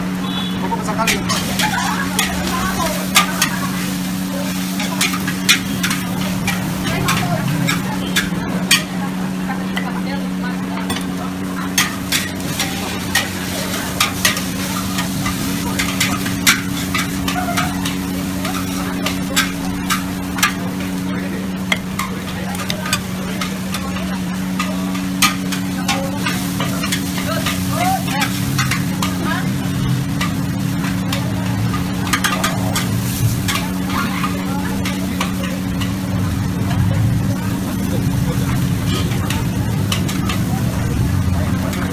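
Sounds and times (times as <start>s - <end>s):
food sizzling: 0.0s - 41.9s
spatula scraping a wok: 0.3s - 9.1s, 10.9s - 41.9s
metal ladle scraping a wok: 1.0s - 8.9s, 11.7s - 21.0s.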